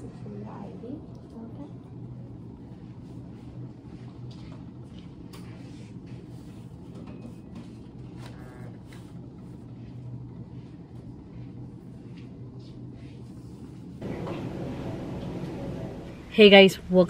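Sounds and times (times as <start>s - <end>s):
low room hum: 0.0s - 17.0s.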